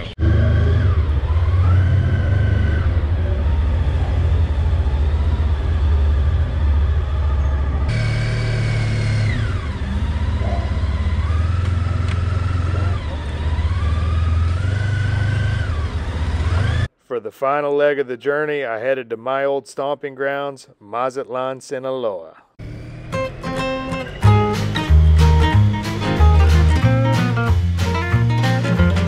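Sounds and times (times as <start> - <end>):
motorcycle engine rumble and whine: 0.0 - 16.9, 22.6 - 24.5.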